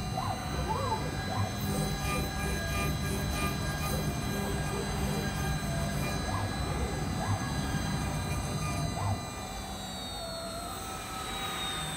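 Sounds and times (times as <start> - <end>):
router spindles whining: 0.0 - 11.9.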